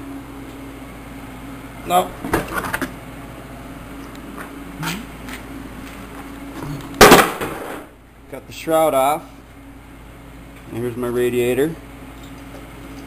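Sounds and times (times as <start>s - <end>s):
low background hum: 0.0s - 13.0s
loud burst of noise: 7.0s - 8.0s.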